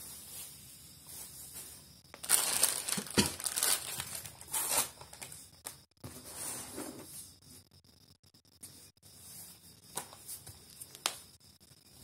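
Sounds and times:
packaging crinkling and rustling: 2.1 - 5.4.

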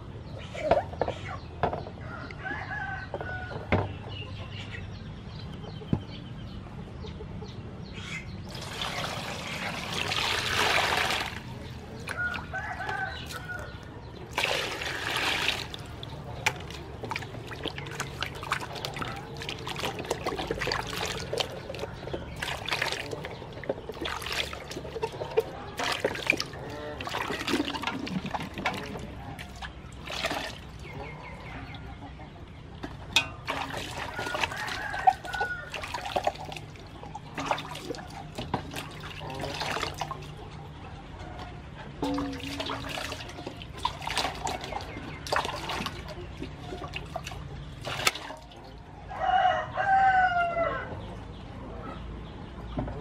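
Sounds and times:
chickens calling: 0.3 - 53.0
water poured into metal basin: 8.5 - 12.6, 14.2 - 31.2, 32.8 - 40.4, 42.0 - 48.8
pumpkins knocking and splashing: 8.5 - 13.6, 14.2 - 31.2, 32.8 - 40.4, 42.0 - 48.7.

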